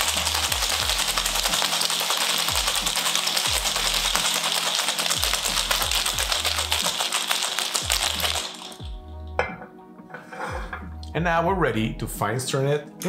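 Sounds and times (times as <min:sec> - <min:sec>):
ice rattling in cocktail shaker: 0:00.0 - 0:09.4.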